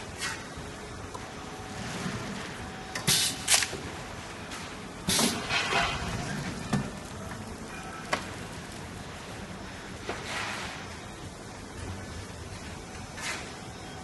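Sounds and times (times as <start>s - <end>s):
steady machine hum: 0.0s - 14.0s
metal tray drawer sliding: 5.1s - 6.6s.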